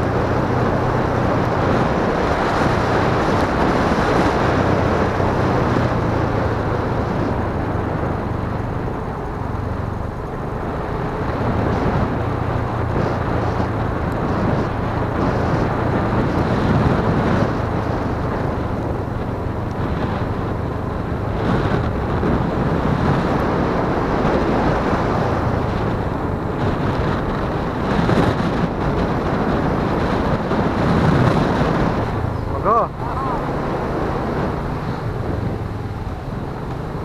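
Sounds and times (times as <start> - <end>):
motorcycle engine running: 0.0 - 37.0
wind buffeting microphone: 0.0 - 37.0.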